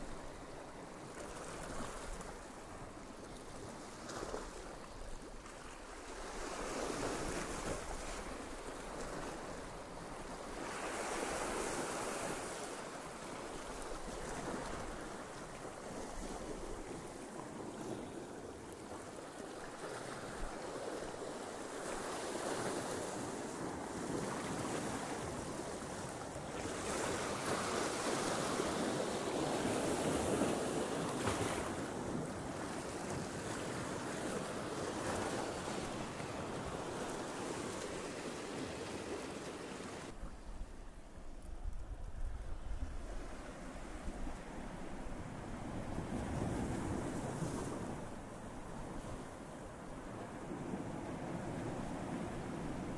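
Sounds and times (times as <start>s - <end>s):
sea waves washing over rocks: 6.0s - 40.2s
wind buffeting microphone: 31.8s - 49.4s.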